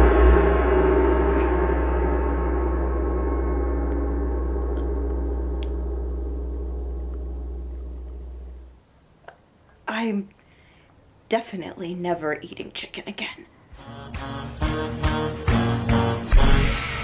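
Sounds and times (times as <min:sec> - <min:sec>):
deep gong-like resonant hit: 0:00.0 - 0:08.8.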